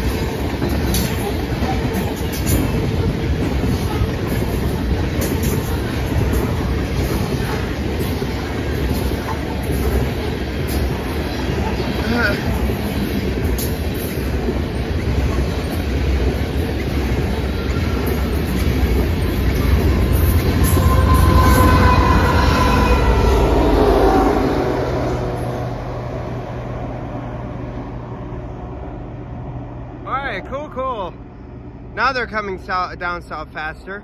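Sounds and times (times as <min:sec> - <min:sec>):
train wheels rumbling and clattering: 0:00.0 - 0:34.0
high wheel squealing: 0:17.2 - 0:24.6.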